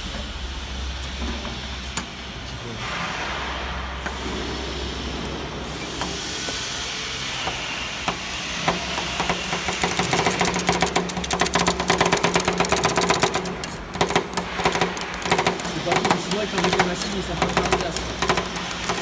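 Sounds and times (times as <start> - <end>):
cooling unit hum: 0.0 - 19.0
spatulas chopping on steel pan: 8.7 - 19.0.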